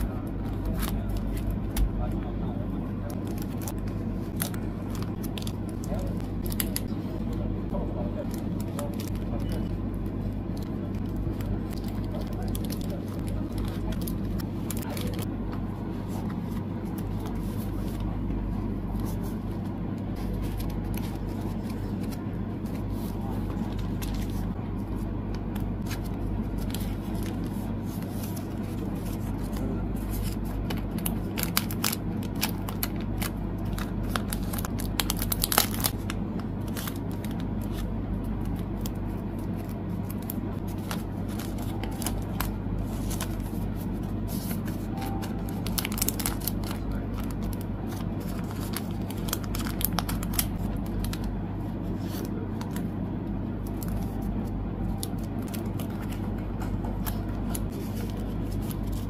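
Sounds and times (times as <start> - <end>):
steady low hum: 0.0 - 59.0
crinkling plastic sleeves: 3.0 - 6.9, 10.5 - 15.3, 19.0 - 52.9, 53.6 - 59.0
card clicks and rustles: 19.0 - 51.3, 51.9 - 52.9, 53.6 - 59.0.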